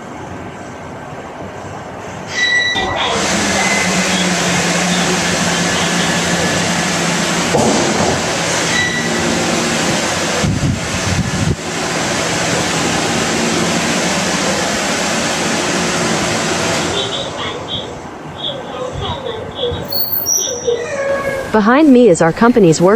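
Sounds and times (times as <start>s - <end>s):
air shower rushing air: 3.1s - 17.0s.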